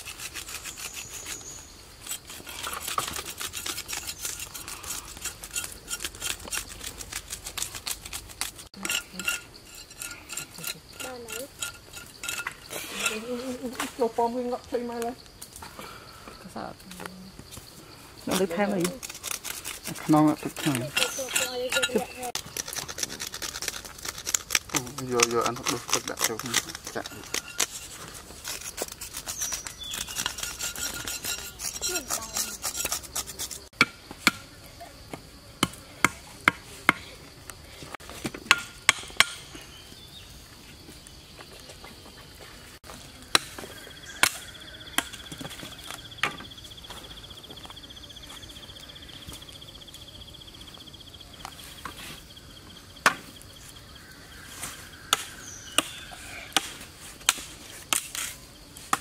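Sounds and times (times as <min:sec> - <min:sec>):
insect buzzing: 0:00.0 - 0:37.8, 0:42.4 - 0:59.0
small clicks and scrapes: 0:02.0 - 0:13.2, 0:18.3 - 0:33.7
chopping knocks on wooden stakes: 0:33.8 - 0:34.4, 0:35.6 - 0:37.0, 0:38.2 - 0:39.4.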